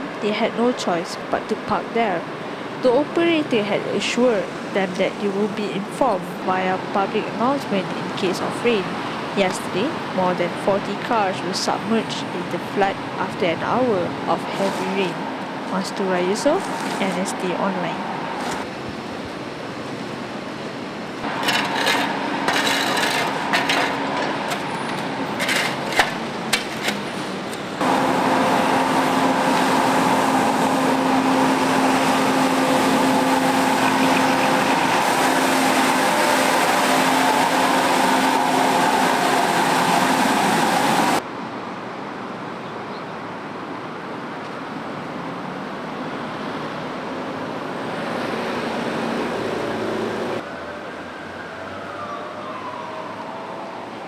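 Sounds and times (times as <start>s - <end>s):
street sweeper truck running: 0.0s - 18.7s, 21.2s - 41.2s
road traffic: 0.0s - 54.0s
shovel scraping mud and asphalt: 14.4s - 15.1s, 21.3s - 27.1s
rotary brushes sweeping: 21.2s - 27.0s.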